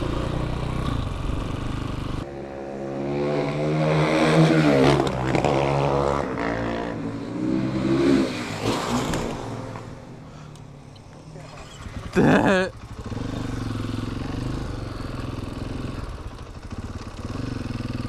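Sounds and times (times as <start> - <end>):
dirt bike engine revving: 0.0 - 9.8, 11.4 - 18.0.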